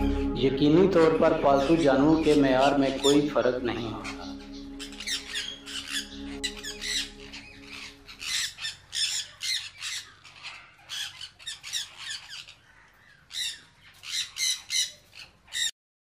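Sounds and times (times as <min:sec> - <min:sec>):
parrots screeching: 0:01.0 - 0:15.7.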